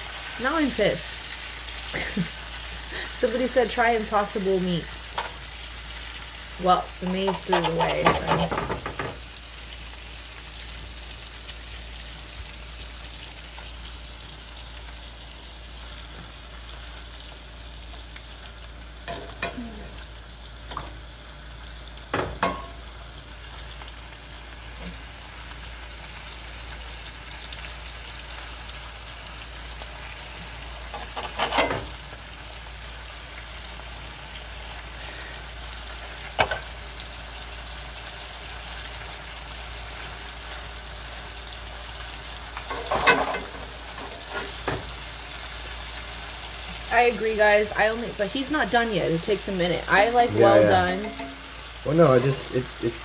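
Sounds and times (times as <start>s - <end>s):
meat sizzling in oil: 0.0s - 53.0s
metal fork scraping pan: 7.1s - 8.6s, 30.9s - 31.8s.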